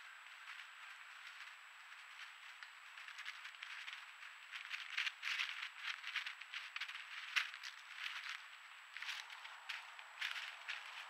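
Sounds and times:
squirrel scurrying through dry leaves: 0.0s - 11.0s.

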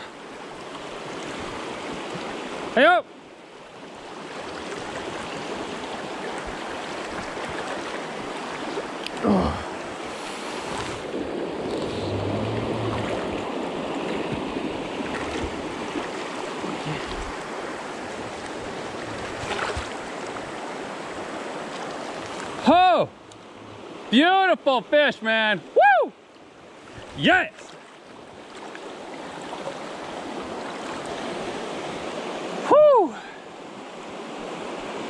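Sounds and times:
river rushing over rocks: 3.7s - 23.0s
sound sliding down in pitch: 11.8s - 13.3s.

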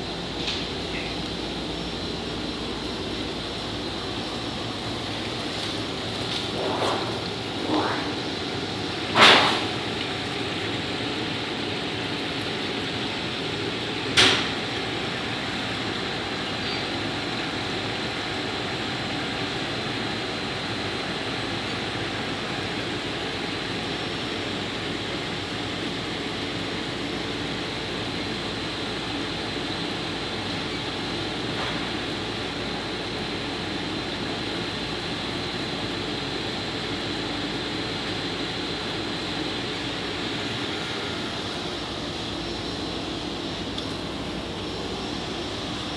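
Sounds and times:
washing machine motor humming: 0.0s - 45.9s.

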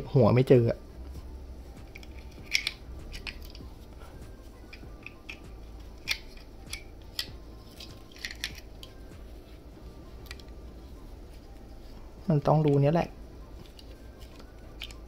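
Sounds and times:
plastic parts clicking together: 1.9s - 3.6s, 4.7s - 9.0s, 13.6s - 15.0s.

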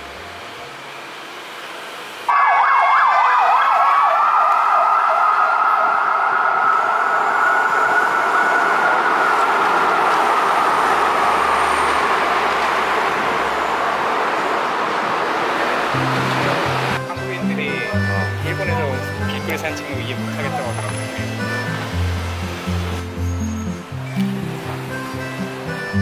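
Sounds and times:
traffic-like noise: 0.0s - 26.0s
siren warbling: 2.3s - 11.9s.

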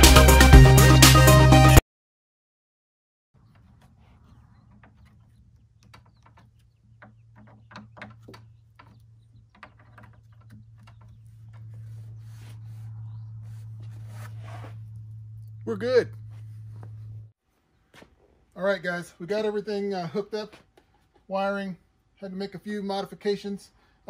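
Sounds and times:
hand tool and small parts rattling: 3.4s - 12.3s
steady low hum: 10.6s - 17.3s.

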